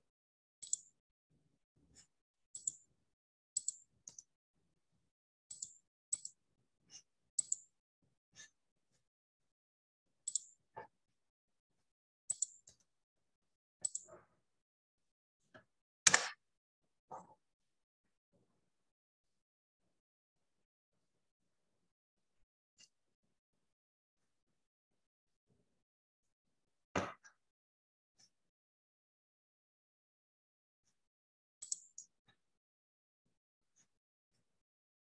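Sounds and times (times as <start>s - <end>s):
computer mouse clicks: 0.6s - 0.9s, 2.6s - 2.8s, 3.6s - 4.3s, 5.5s - 6.4s, 7.4s - 7.6s, 10.3s - 10.5s, 12.3s - 12.8s, 13.8s - 14.2s, 16.1s - 16.4s, 31.6s - 32.1s.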